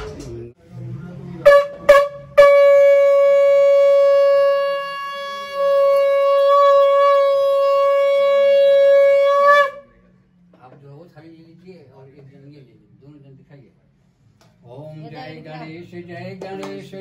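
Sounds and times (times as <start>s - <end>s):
conch shell blast: 1.4s - 10.1s.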